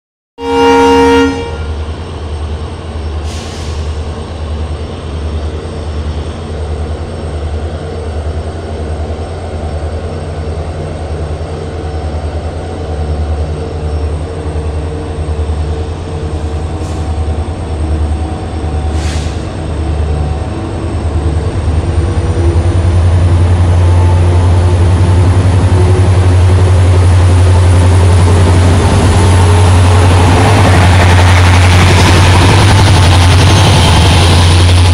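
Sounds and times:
locomotive horn blast: 0.4 - 1.9, 23.7 - 24.6
diesel locomotive engine pulsing: 0.5 - 34.9
rising engine whine: 19.6 - 34.9.

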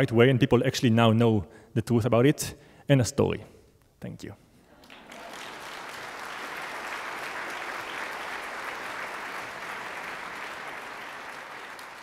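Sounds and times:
audience applauding: 4.8 - 12.0.

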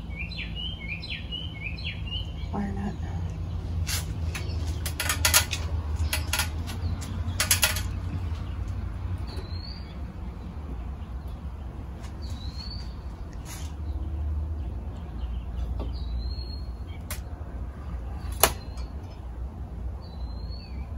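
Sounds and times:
bird chirping: 0.0 - 19.4, 20.0 - 20.9
electrical wires crackling and clicking: 3.7 - 9.4.

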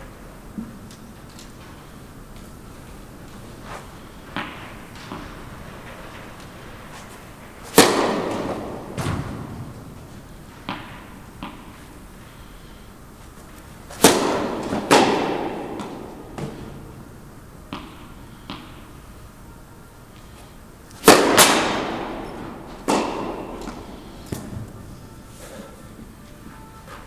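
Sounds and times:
tennis balls bouncing: 2.4 - 19.2, 20.9 - 24.7
racket hitting tennis ball: 3.2 - 19.2, 20.9 - 24.7.

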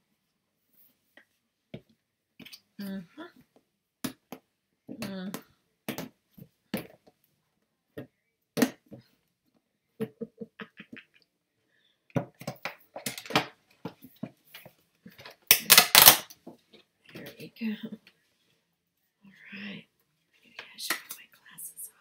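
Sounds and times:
packaging crinkling and clicking: 15.5 - 16.3.

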